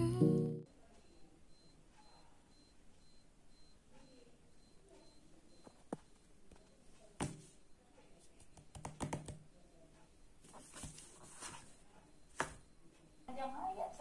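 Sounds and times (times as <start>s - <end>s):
quiet clicks and taps: 3.9s - 13.1s.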